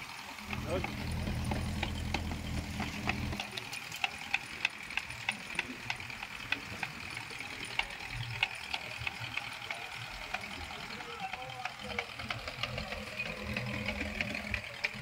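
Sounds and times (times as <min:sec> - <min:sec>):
low engine hum: 0:00.4 - 0:04.3.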